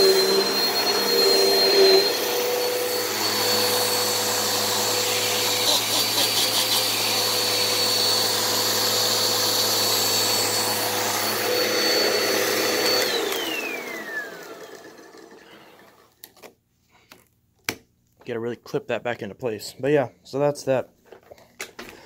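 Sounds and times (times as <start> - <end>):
vacuum cleaner motor whine: 0.0 - 16.2.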